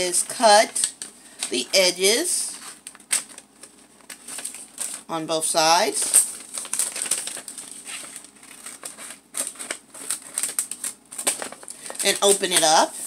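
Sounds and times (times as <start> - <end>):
paper rustling and crinkling: 2.5 - 5.1, 5.8 - 12.8.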